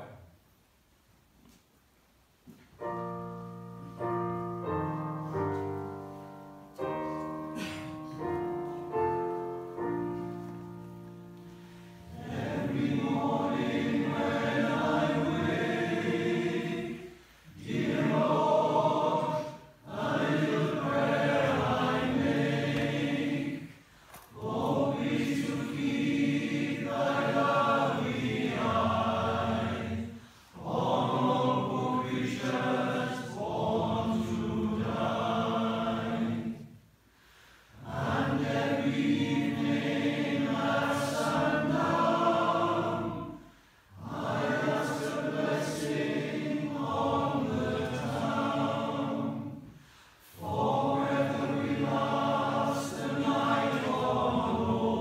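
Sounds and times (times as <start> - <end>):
piano chords: 2.8 - 23.7
male voice choir singing: 12.2 - 23.7, 44.0 - 49.6, 50.4 - 55.0.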